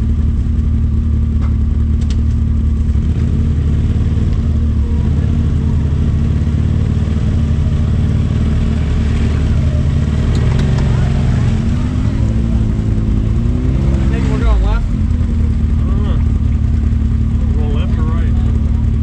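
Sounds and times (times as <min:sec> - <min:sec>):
utility vehicle engine droning: 0:00.0 - 0:19.0.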